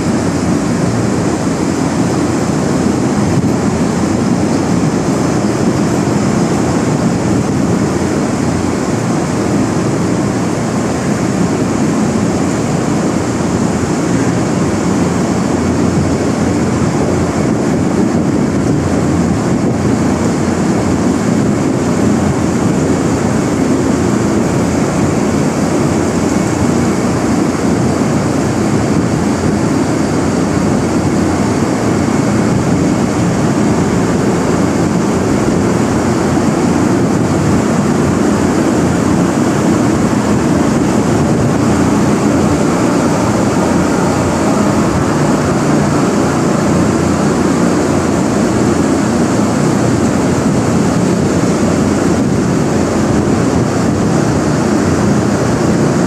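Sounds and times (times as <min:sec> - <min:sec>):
ventilation fans rushing: 0:00.0 - 0:56.0.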